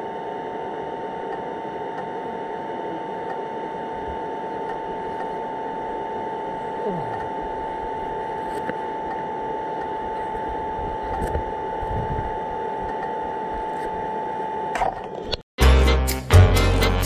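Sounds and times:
steady high whine: 0:00.0 - 0:15.4
wind rumbling on microphone: 0:10.8 - 0:12.4.

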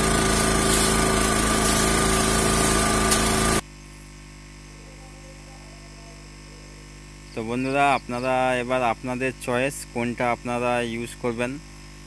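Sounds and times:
portable generator running: 0:00.0 - 0:03.6.

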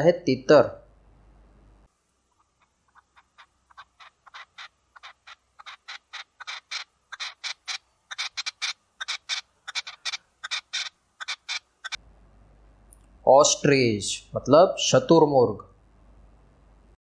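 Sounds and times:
partridge calling: 0:02.3 - 0:12.0.

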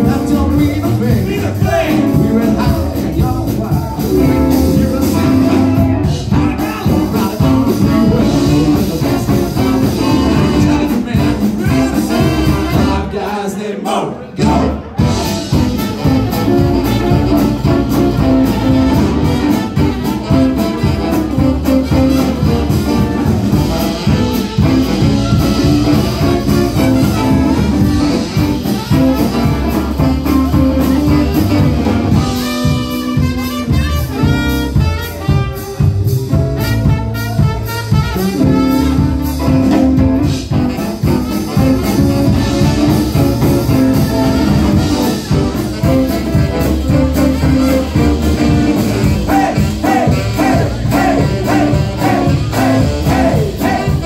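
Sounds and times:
upright bass groove: 0:00.0 - 0:13.3, 0:14.4 - 0:54.0
live jazz band playing: 0:00.0 - 0:13.6, 0:14.2 - 0:54.0.

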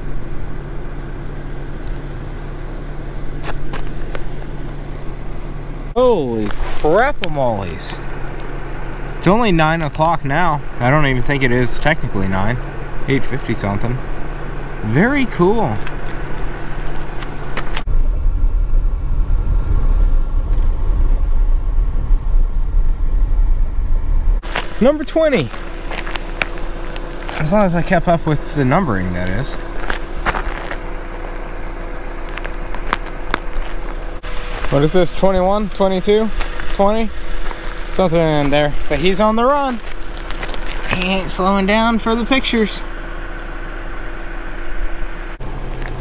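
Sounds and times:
car engine idling: 0:00.0 - 0:46.0.

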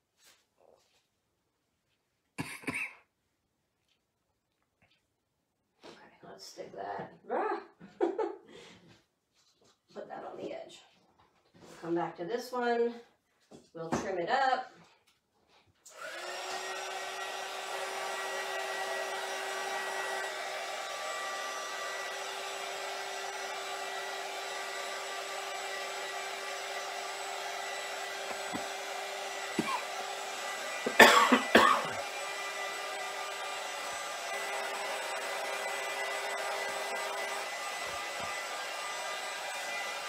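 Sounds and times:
heat tool whirring hum: 0:15.9 - 0:40.0.

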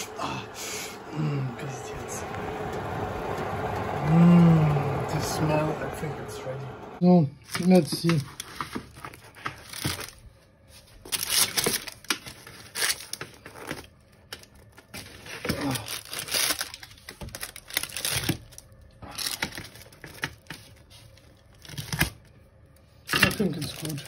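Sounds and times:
baking paper crinkling: 0:07.5 - 0:22.4, 0:23.1 - 0:24.0.

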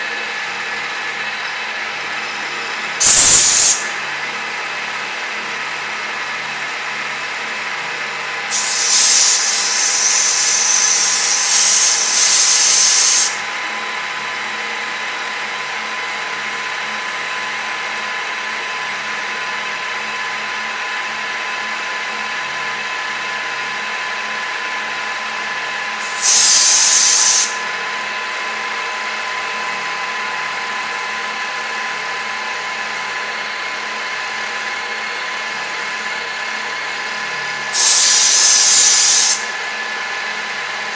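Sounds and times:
milling machine whine: 0:00.0 - 0:40.9
loud bursts of hiss: 0:03.0 - 0:03.9, 0:08.5 - 0:13.4, 0:26.0 - 0:27.6, 0:37.7 - 0:39.5.

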